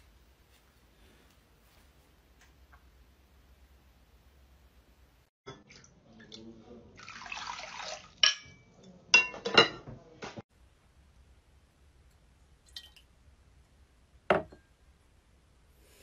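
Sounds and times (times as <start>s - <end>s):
ceramic dishes clinking: 8.2s - 9.9s.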